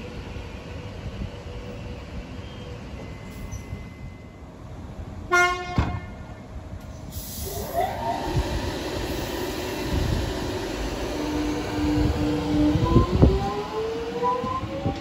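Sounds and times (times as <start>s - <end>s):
train horn toot: 5.3s - 6.2s
train traction motors whining: 7.4s - 15.0s.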